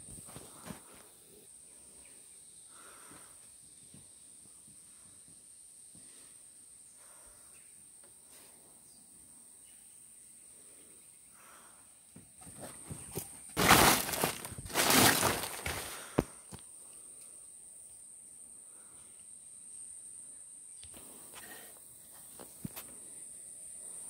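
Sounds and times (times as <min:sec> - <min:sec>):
insect drone: 0:00.0 - 0:24.0
clothing and branches rustling: 0:12.4 - 0:16.6.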